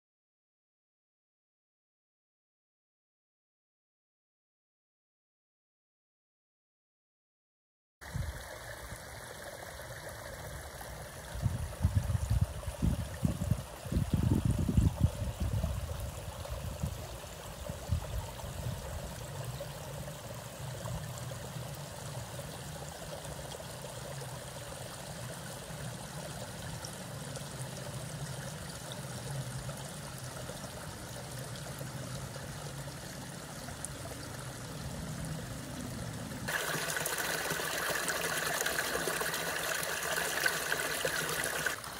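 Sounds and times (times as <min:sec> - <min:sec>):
stream running: 0:08.0 - 0:41.9
wind buffeting microphone: 0:11.4 - 0:19.1.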